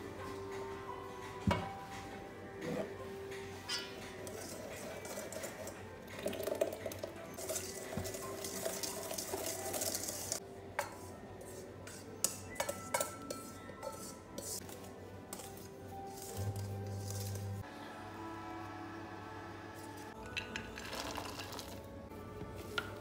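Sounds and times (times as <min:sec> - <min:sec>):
whisk beating in metal bowl: 0:07.4 - 0:14.7
whisk clinking on bowl: 0:07.4 - 0:14.7.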